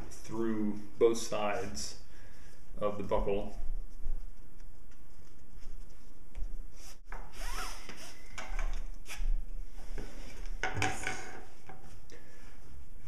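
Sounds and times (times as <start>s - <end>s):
strap sliding through buckle: 6.8s - 8.2s.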